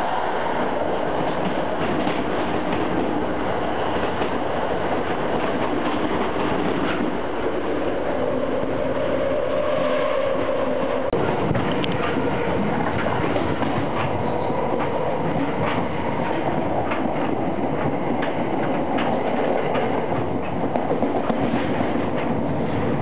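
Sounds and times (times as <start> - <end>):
train car rumble and rattle: 0.0 - 23.0
wheels clicking over rail joints: 1.2 - 3.3, 11.1 - 23.0.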